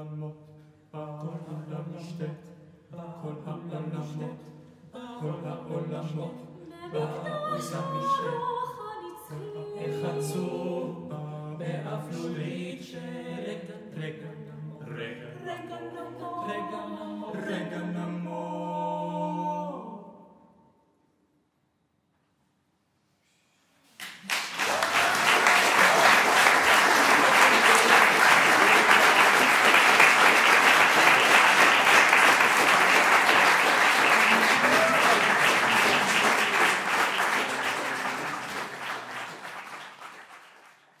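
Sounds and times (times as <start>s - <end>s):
audience applauding: 24.0s - 41.0s.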